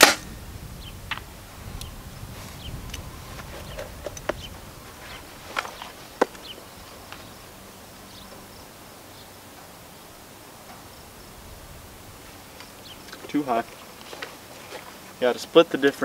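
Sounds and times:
faint outdoor background: 0:00.0 - 0:16.0
binoculars and harness clicking: 0:02.8 - 0:07.3, 0:12.6 - 0:15.2.

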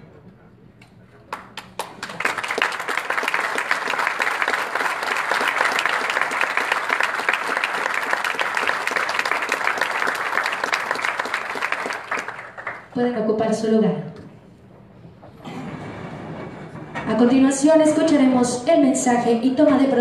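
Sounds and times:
audience applauding: 0:01.3 - 0:13.0.

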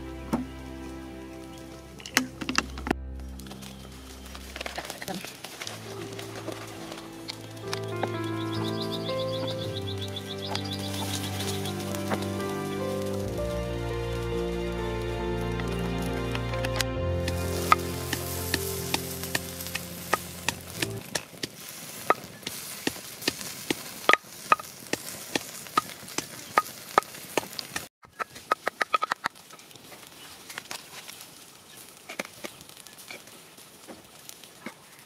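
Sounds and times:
background music: 0:00.0 - 0:21.0
wood fire crackling and popping: 0:02.0 - 0:14.7, 0:15.6 - 0:35.0.

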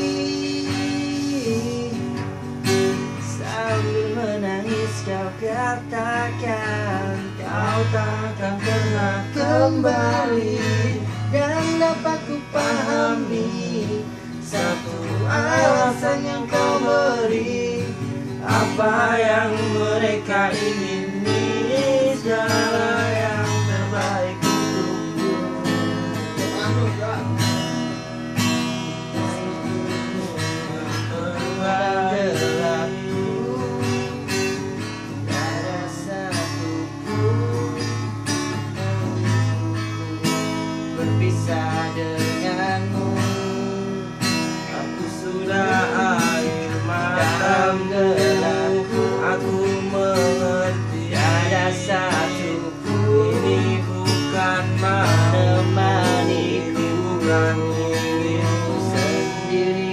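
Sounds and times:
acoustic guitar strumming: 0:00.0 - 0:59.9.

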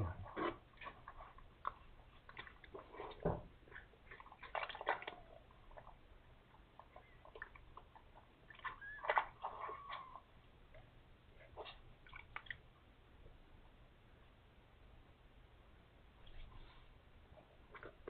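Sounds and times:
wet licking sounds: 0:00.2 - 0:12.6.

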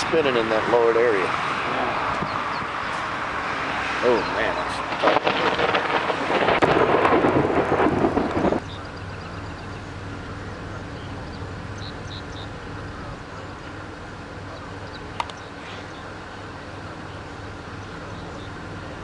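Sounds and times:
thunder rumbling: 0:04.4 - 0:08.9.

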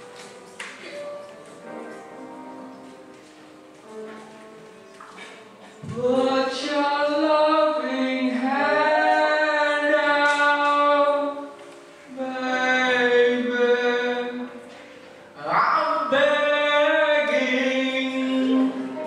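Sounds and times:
man singing long held notes: 0:15.4 - 0:19.0.

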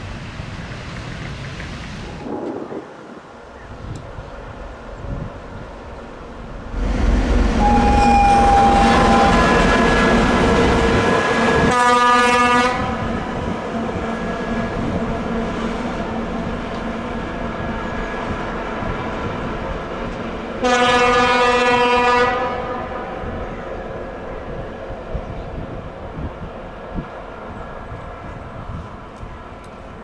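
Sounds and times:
diesel locomotive engine: 0:00.0 - 0:30.0
locomotive horn blast: 0:07.5 - 0:13.2, 0:20.6 - 0:23.2.

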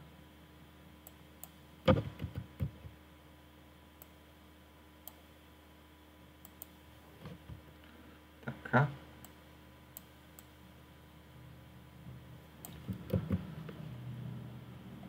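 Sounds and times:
faint steady hum: 0:00.0 - 0:15.0
computer mouse clicking: 0:06.4 - 0:06.8, 0:12.6 - 0:13.4.

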